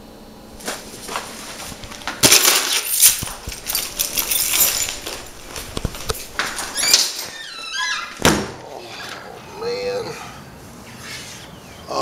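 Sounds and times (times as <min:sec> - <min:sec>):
keys jingling and clinking: 0:01.8 - 0:07.6.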